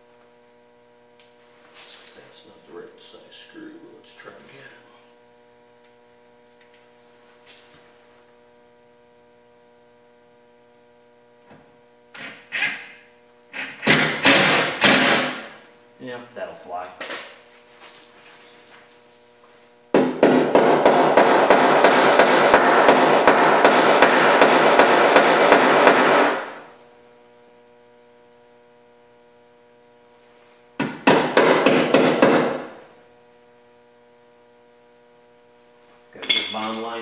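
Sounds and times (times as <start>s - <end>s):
power tool hammering rattle: 12.1s - 15.6s, 19.9s - 26.6s, 30.8s - 32.8s.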